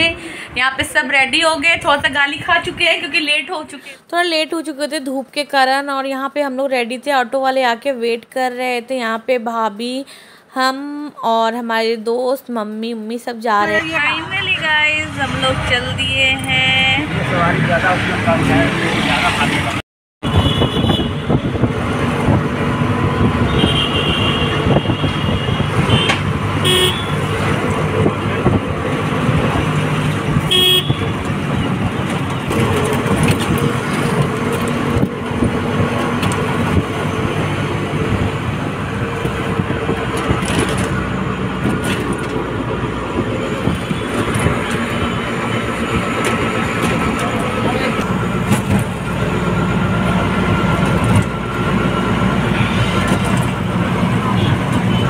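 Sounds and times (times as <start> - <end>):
engine and road rumble: 0.0 - 9.3, 13.4 - 55.0
vehicle horns honking: 20.2 - 21.6, 23.4 - 27.4, 30.4 - 31.3, 52.5 - 53.3, 54.2 - 55.0.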